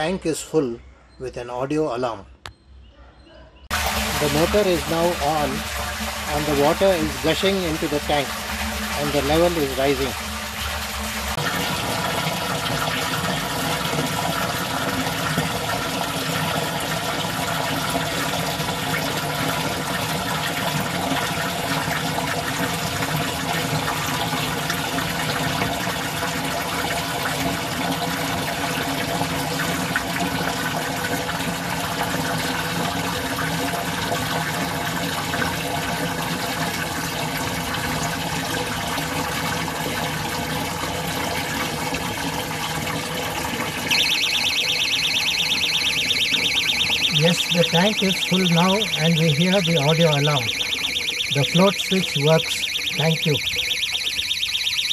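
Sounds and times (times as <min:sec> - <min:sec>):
water gushing into tank: 0:03.7 - 0:54.9
high-pitched alarm buzzer pulsing: 0:43.9 - 0:54.9.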